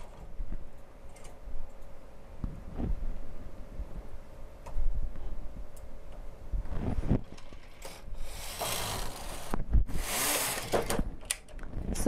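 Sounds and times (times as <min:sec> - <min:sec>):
knitting machine carriage rasping: 0:07.7 - 0:11.0.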